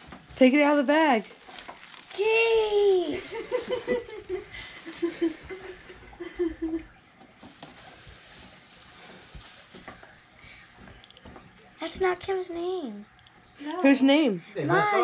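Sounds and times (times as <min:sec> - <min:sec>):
rustling: 0:00.0 - 0:05.8, 0:07.3 - 0:11.4.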